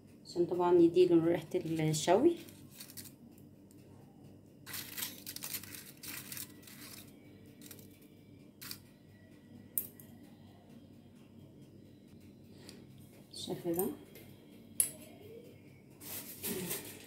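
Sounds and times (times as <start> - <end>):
aluminium foil crinkling: 1.6 - 3.2, 4.7 - 7.9, 16.0 - 17.0.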